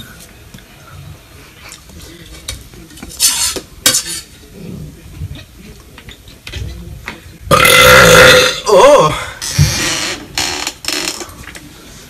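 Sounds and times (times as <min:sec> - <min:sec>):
sudden loud vocal sound: 0:07.5 - 0:09.4.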